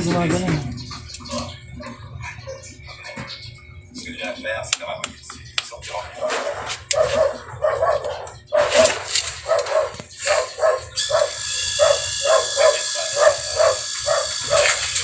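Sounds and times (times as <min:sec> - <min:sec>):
dog barking: 0:01.3 - 0:03.2, 0:06.2 - 0:14.8
steady hiss with high whining tones: 0:10.1 - 0:15.0.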